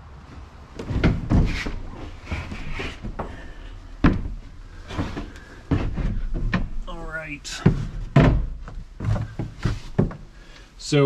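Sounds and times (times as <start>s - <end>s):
truck bed slide rolling: 0.8s - 3.6s.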